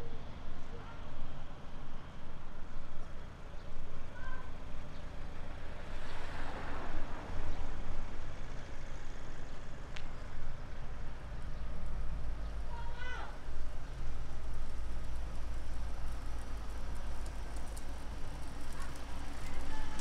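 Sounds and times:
car engines idling in traffic: 0:00.0 - 0:20.0.

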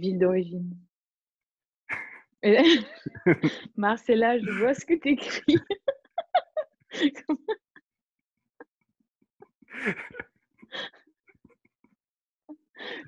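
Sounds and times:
woman giggling: 0:02.4 - 0:07.6, 0:09.8 - 0:10.2.

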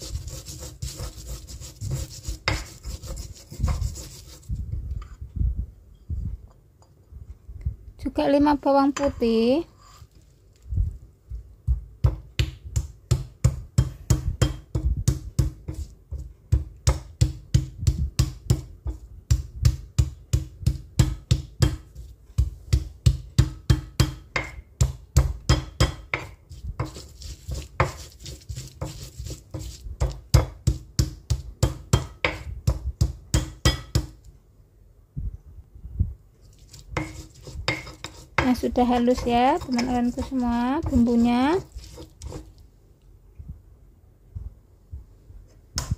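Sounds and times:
stone pestle pounding in mortar: 0:00.0 - 0:04.4, 0:11.6 - 0:34.2, 0:37.0 - 0:42.5.

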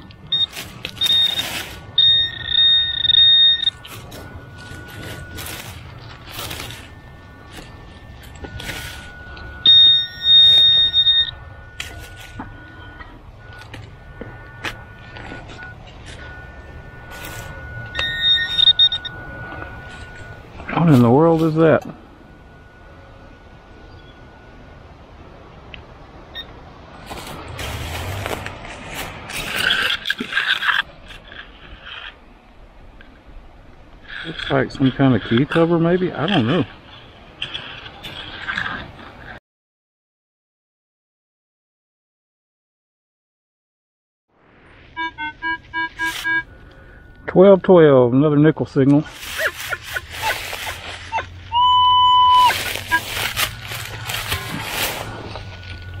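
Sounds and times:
dry leaves rustling and crackling: 0:00.0 - 0:03.1, 0:03.7 - 0:09.6, 0:11.7 - 0:17.9, 0:26.9 - 0:32.2, 0:49.1 - 0:51.6, 0:52.2 - 0:56.0
faint steady electronic tone: 0:00.0 - 0:28.4, 0:44.5 - 0:49.0, 0:51.8 - 0:56.0.

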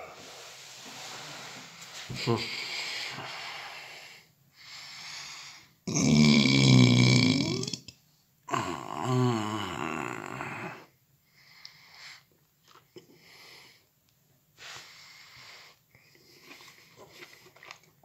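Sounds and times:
man breathing hard through nose: 0:00.0 - 0:05.8, 0:14.6 - 0:17.4.

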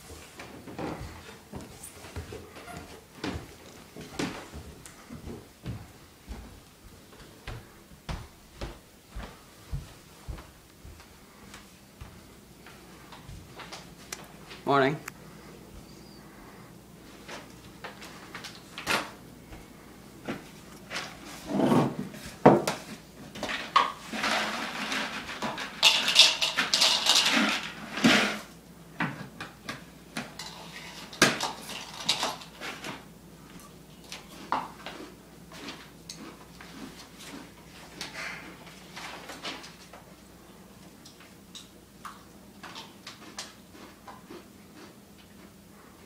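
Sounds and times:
pouring and rattling: 0:23.5 - 0:28.5, 0:30.4 - 0:32.6.

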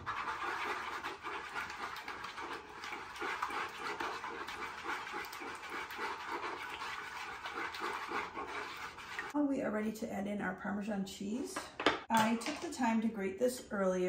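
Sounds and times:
wooden utensil whisking in bowl: 0:00.0 - 0:09.4.

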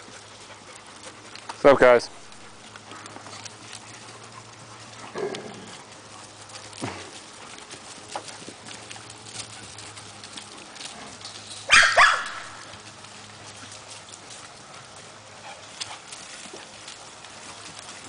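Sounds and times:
dog paws scuffling over leaves: 0:00.0 - 0:18.0
dog barking: 0:11.7 - 0:12.6.

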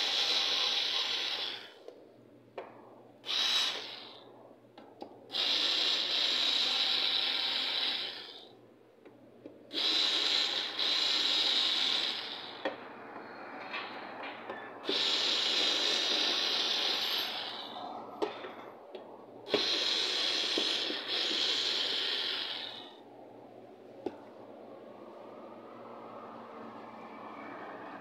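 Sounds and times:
cordless drill running: 0:00.0 - 0:01.7, 0:03.3 - 0:04.2, 0:05.3 - 0:08.4, 0:09.7 - 0:12.6, 0:14.8 - 0:17.7, 0:19.5 - 0:22.9.

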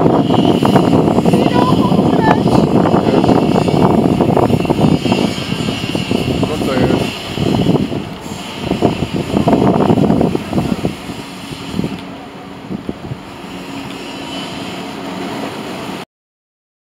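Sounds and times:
distant jet engines rumbling: 0:00.0 - 0:16.0
wind buffeting microphone: 0:00.0 - 0:16.0.

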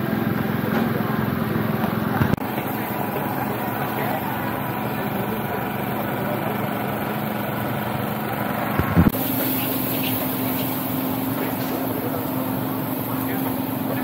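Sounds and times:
mechanical hum: 0:00.0 - 0:14.0
short low thump: 0:08.7 - 0:09.2.

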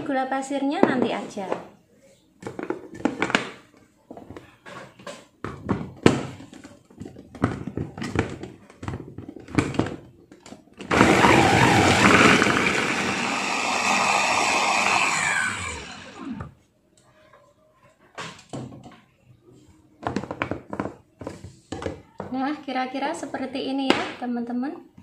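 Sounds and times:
electric chopper grinding: 0:10.9 - 0:16.5
motor winding down whine: 0:10.9 - 0:16.5.

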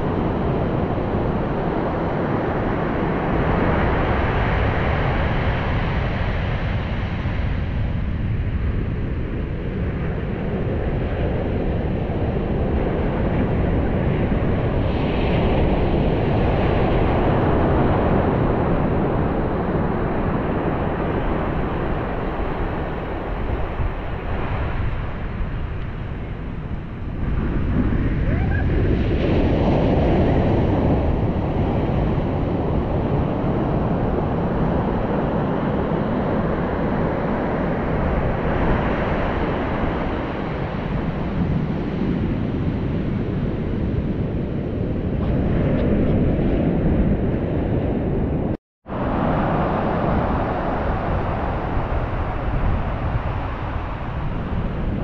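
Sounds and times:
wind buffeting microphone: 0:00.0 - 0:55.0
waves breaking: 0:48.9 - 0:55.0.

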